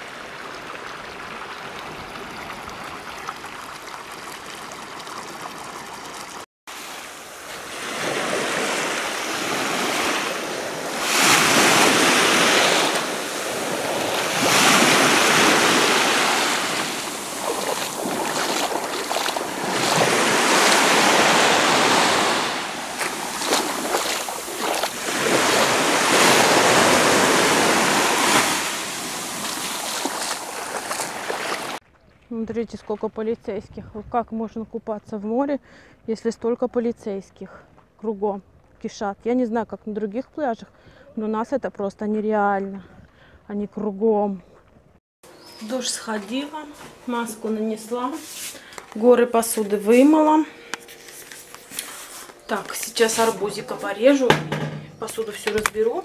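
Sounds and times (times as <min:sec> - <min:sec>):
small waves washing up shore: 0:00.0 - 0:31.8.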